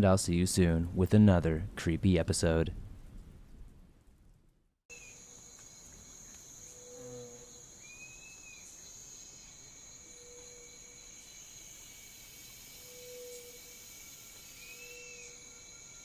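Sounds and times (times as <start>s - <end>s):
insects droning: 4.9s - 16.0s.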